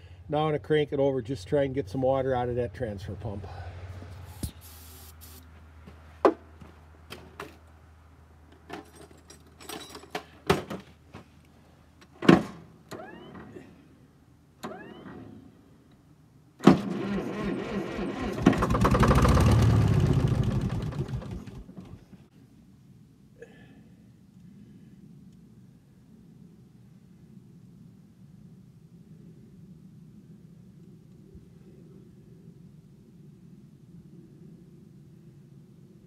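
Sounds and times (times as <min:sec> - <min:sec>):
spray can hiss: 0:04.3 - 0:05.4
starter cranking diesel engine: 0:16.6 - 0:22.0.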